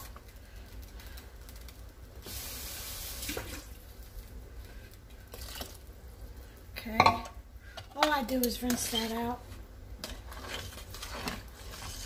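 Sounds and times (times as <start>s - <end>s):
low steady hum: 0.0s - 12.0s
kitchen tap running: 2.2s - 4.0s.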